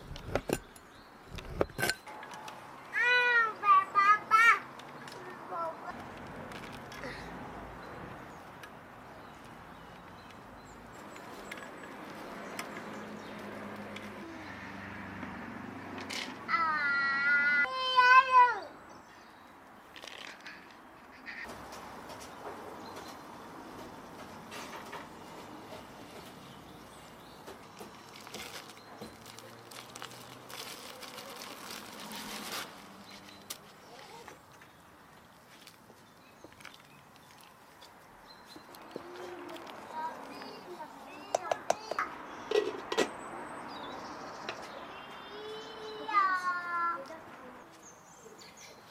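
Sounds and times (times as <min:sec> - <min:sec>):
noodles rustling: 0:24.3 - 0:41.1.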